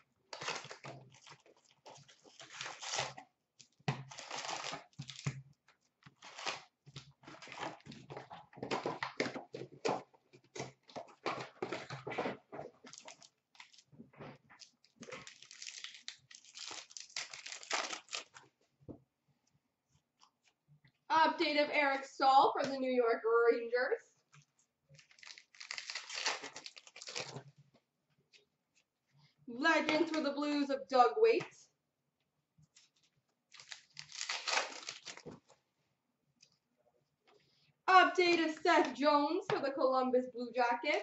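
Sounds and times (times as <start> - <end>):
plastic wrappers tearing and crinkling: 0.3 - 5.4, 6.1 - 9.7, 10.6 - 14.0, 14.6 - 18.5, 25.0 - 27.5, 33.5 - 35.4.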